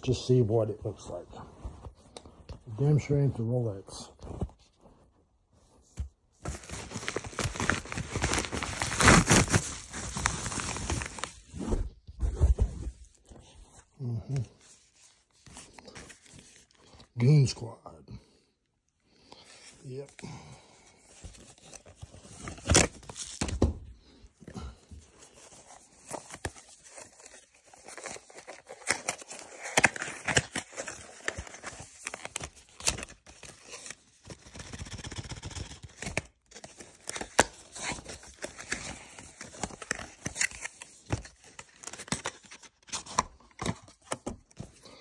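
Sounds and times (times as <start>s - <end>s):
cardboard and paper rustling: 5.8s - 16.9s, 20.8s - 45.0s.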